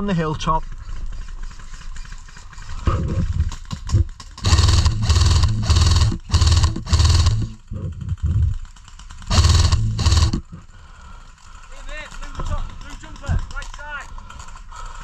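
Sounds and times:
heavy rhythmic panting: 2.7s - 8.6s, 9.3s - 11.9s
clicks and rustles: 11.4s - 15.0s.

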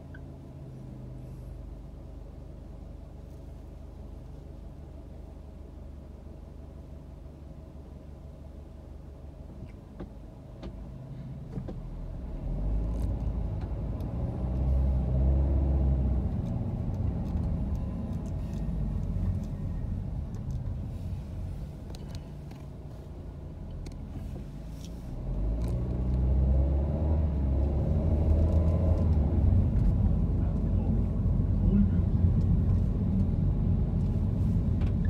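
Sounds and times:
car engine from inside cabin: 0.0s - 35.0s
road noise: 9.0s - 35.0s.

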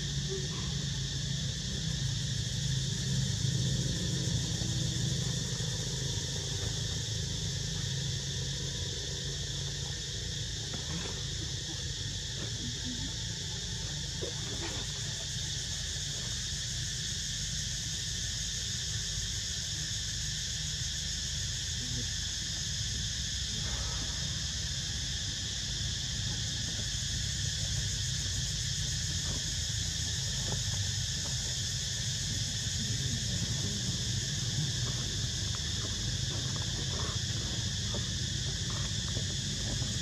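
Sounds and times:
insect chorus humming: 0.0s - 40.0s.

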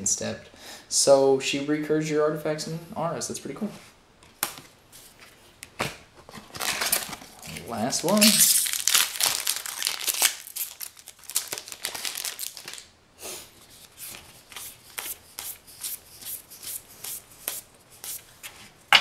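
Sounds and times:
trading cards flicking and swishing: 13.8s - 18.2s.

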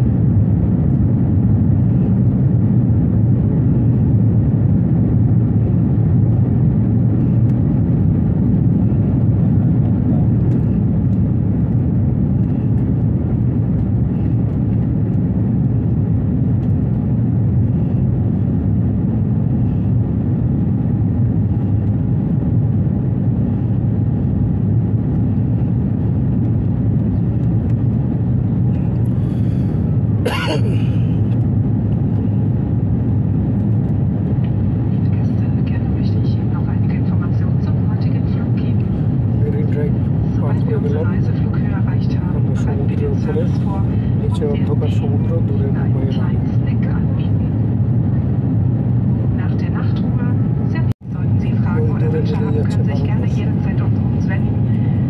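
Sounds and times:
airliner cabin drone: 0.0s - 55.0s.

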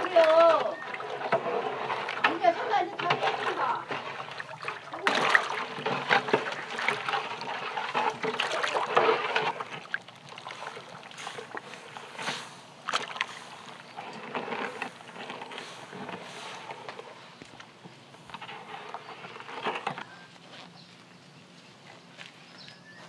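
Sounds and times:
paddle stirring broth in pot: 0.0s - 17.3s.

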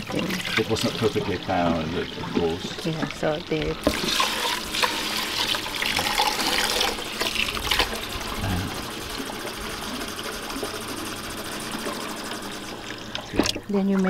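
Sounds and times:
tap water pouring into pot: 0.0s - 10.8s.

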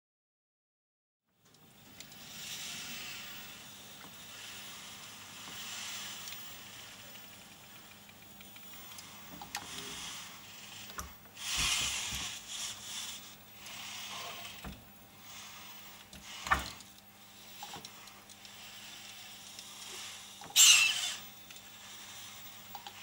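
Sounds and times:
robot servos whirring: 8.7s - 15.6s, 16.2s - 23.0s.

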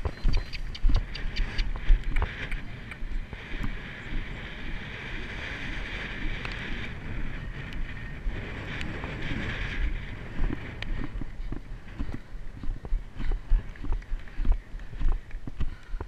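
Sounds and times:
sharp clicks: 0.0s - 3.7s
hoofbeats on grass: 0.0s - 7.2s, 7.8s - 16.0s
wind on microphone: 0.0s - 16.0s.

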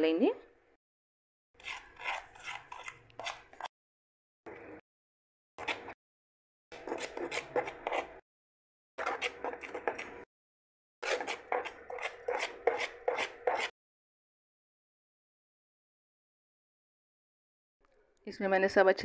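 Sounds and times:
batter stirred in metal bowl: 1.6s - 3.7s, 6.7s - 8.2s, 9.0s - 10.3s, 11.0s - 13.7s.

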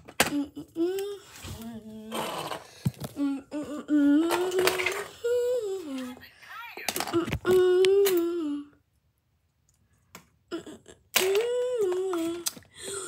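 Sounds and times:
person humming: 7.2s - 8.8s.

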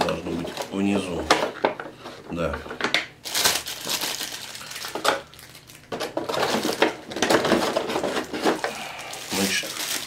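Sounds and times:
plastic tray rustling and clattering: 5.9s - 8.8s.

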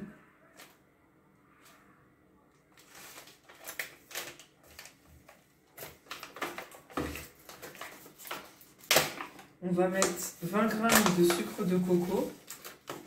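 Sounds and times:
plastic packets crinkling: 2.6s - 13.0s.

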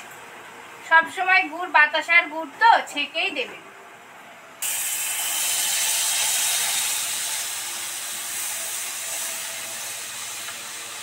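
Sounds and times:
syrup sizzling in hot wok: 4.6s - 11.0s.

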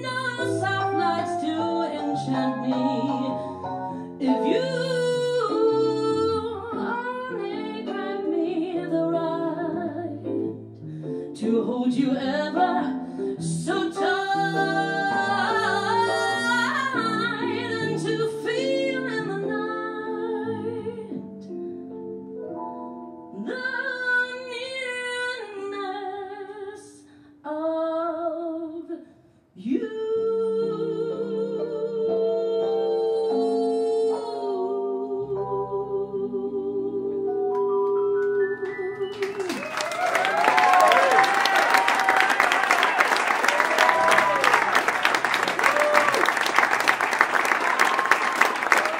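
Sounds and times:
woman singing jazz ballad: 0.0s - 10.6s, 11.2s - 21.4s, 23.4s - 29.0s, 29.6s - 39.3s.

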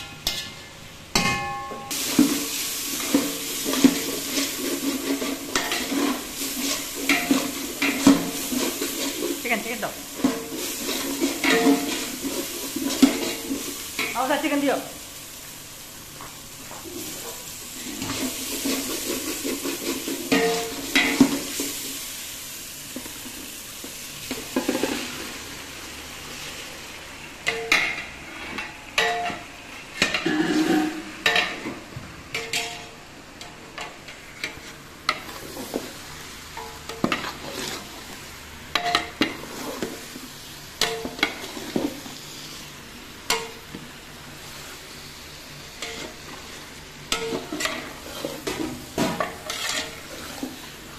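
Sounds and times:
onions and chicken sizzling: 0.0s - 50.9s
spatula knocking ringing pot: 1.1s - 1.9s
spatula scraping pot: 3.0s - 13.5s, 17.8s - 21.4s, 30.0s - 31.0s, 36.9s - 38.2s, 38.8s - 40.0s, 45.8s - 50.7s.

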